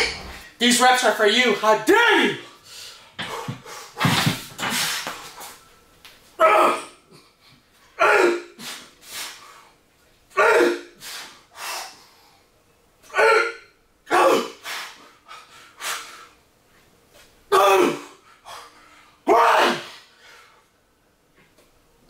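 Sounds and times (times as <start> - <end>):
man exhaling and grunting: 6.4 - 7.3, 8.0 - 8.8, 10.4 - 11.9, 13.1 - 14.8, 17.5 - 18.6, 19.3 - 20.0.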